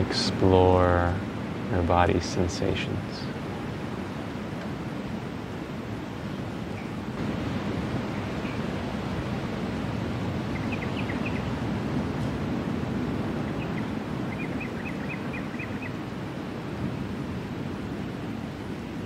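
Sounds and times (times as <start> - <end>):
ocean surf: 0.0 - 19.0
wind: 0.0 - 19.0
small bird chirping: 10.5 - 11.6, 13.4 - 16.0.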